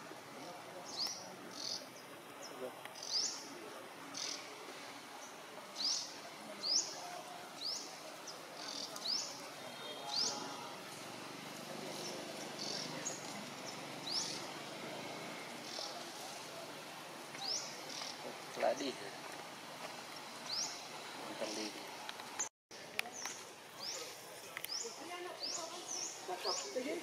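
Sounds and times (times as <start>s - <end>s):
bird chirping: 11.9s - 14.5s, 20.1s - 21.7s.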